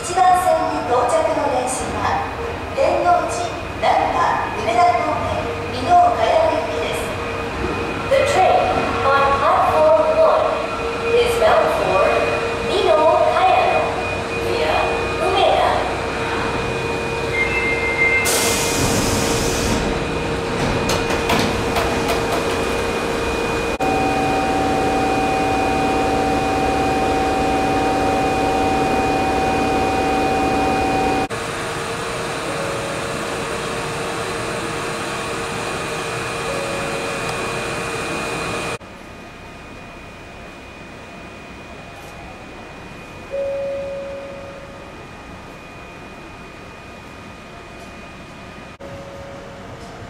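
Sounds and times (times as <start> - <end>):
train equipment hum: 0.0 - 50.0
air hiss burst: 18.2 - 19.8.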